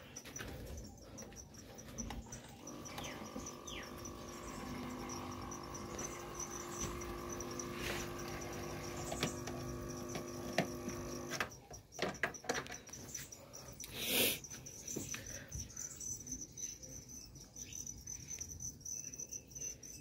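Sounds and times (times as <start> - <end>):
faint high ticking chirp: 0.0 - 20.0
steady electrical hum: 2.6 - 11.4.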